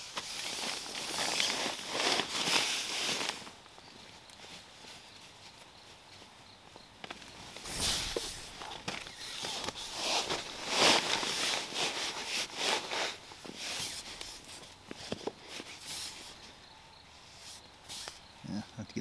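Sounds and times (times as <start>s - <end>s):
person shuffling and rustling: 0.0s - 18.2s.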